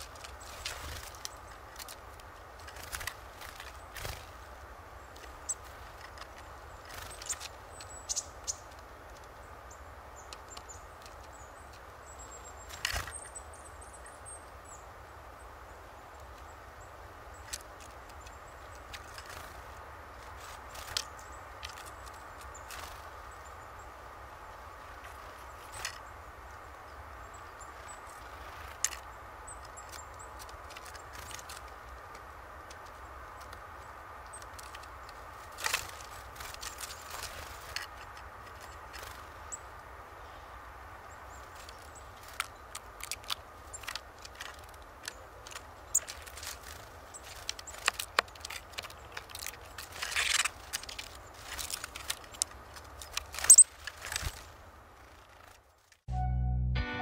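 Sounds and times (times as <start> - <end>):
birds tapping on wooden feeder: 27.3 - 39.8, 41.2 - 54.5.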